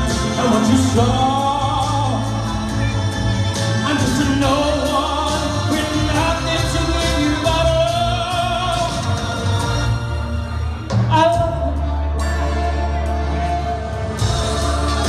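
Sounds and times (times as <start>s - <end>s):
man singing into microphone: 0.0s - 3.1s, 3.8s - 9.3s, 11.0s - 12.7s
swing music accompaniment: 0.0s - 15.0s.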